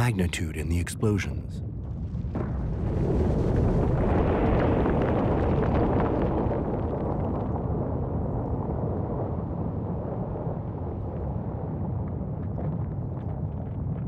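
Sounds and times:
small crackles and pops: 1.8 - 14.0
underwater eruption rumble: 1.9 - 11.0.

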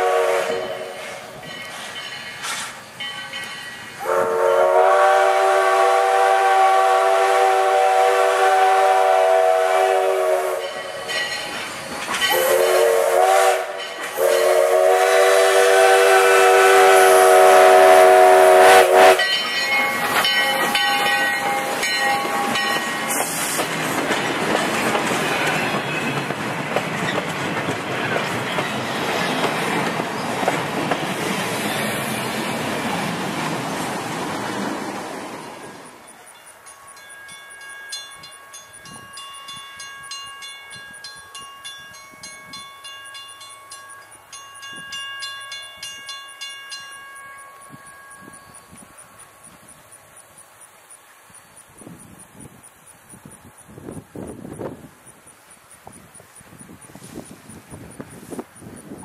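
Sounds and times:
steam whistle chord: 0.0 - 1.2, 4.0 - 10.9, 12.3 - 23.6
train wheels rumbling on rails: 0.0 - 59.0.

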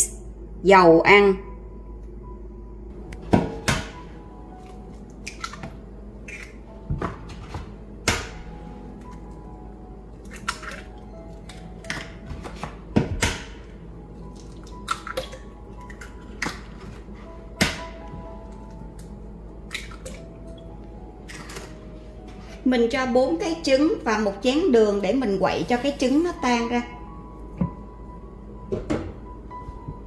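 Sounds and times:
soft background music: 0.0 - 30.0
eggs cracked against bowl: 14.4 - 16.7.

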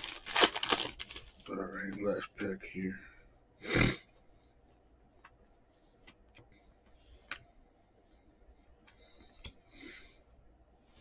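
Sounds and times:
cards rustling: 0.0 - 2.1.

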